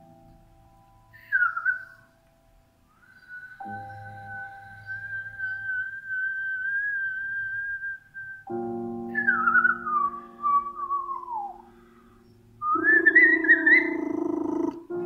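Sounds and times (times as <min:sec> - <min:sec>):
wavering whistling: 0:01.1 - 0:02.1, 0:02.9 - 0:14.9
organ-like chords: 0:08.5 - 0:15.0.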